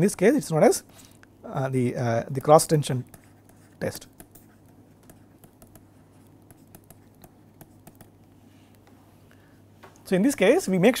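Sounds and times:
low steady hum: 0.0s - 11.0s
stylus tapping on pen tablet: 3.0s - 8.4s.

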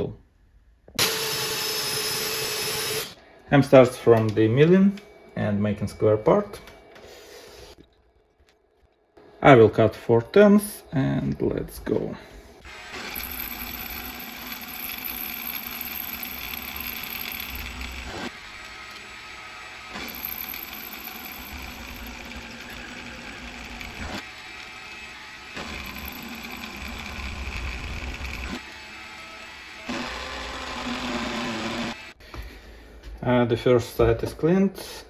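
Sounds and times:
micro mill milling aluminium: 12.7s - 32.2s.

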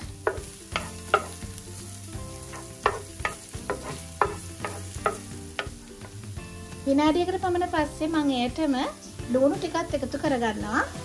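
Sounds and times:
garlic sizzling in oil: 0.0s - 11.0s
wooden spoon scraping pan: 2.3s - 6.2s.

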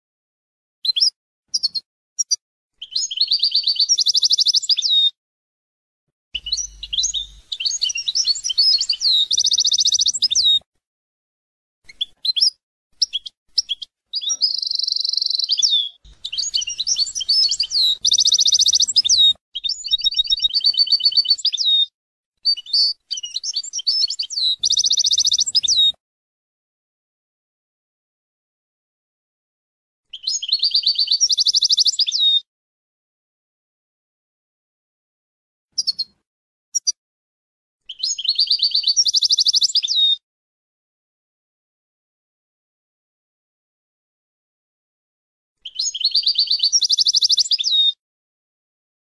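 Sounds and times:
finch singing: 0.9s - 5.2s, 6.4s - 10.6s, 11.9s - 26.0s, 30.1s - 32.4s, 35.8s - 36.2s, 37.9s - 40.2s, 45.6s - 48.0s.

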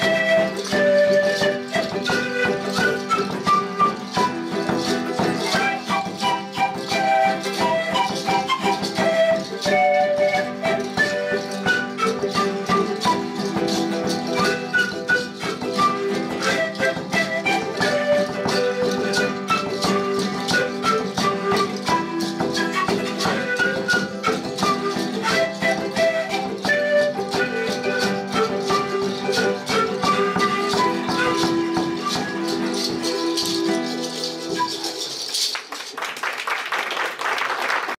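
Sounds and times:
panpipes melody: 0.0s - 35.0s
charango and guitar strumming: 0.0s - 35.5s
audience applause: 35.3s - 38.0s.

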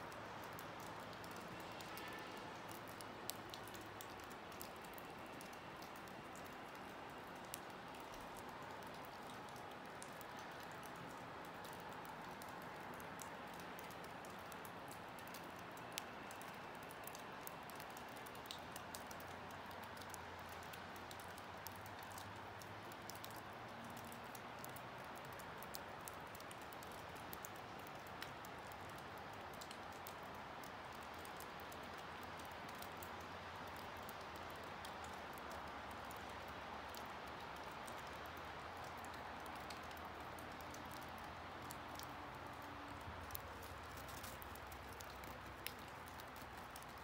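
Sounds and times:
faint steady hiss: 0.0s - 47.0s
light ticks and taps: 0.4s - 47.0s.

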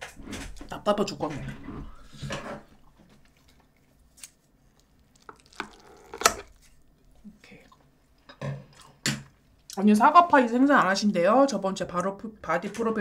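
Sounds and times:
crisp chewing crunches: 3.1s - 7.2s.

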